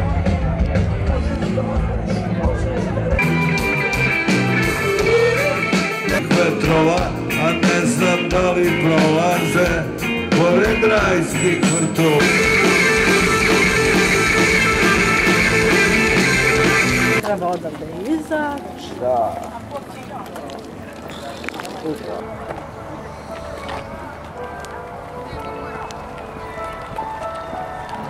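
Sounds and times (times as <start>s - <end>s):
rock band playing through pa: 0.0s - 17.2s.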